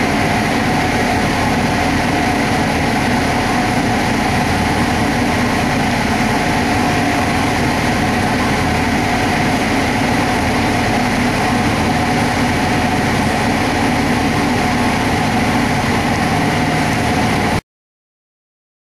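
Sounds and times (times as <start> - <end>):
engine idling loudly: 0.0 - 17.6.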